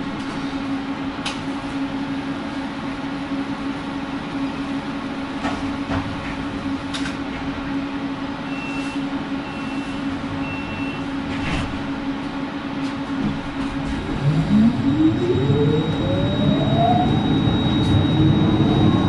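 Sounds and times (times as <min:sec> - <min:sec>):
tram equipment low hum: 0:00.0 - 0:19.0.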